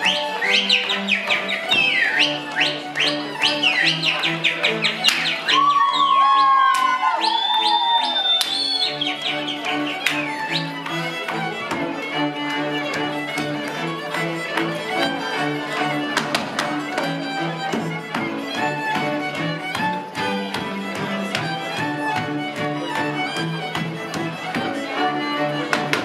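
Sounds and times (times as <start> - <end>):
string band playing dance tune: 0.0 - 26.0
shoes knocking on wooden floor: 9.7 - 14.7, 15.8 - 24.8.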